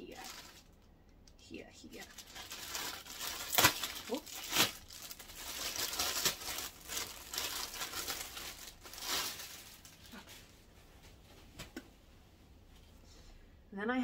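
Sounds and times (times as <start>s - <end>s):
plastic bag crinkling: 0.0s - 0.8s, 1.9s - 10.5s.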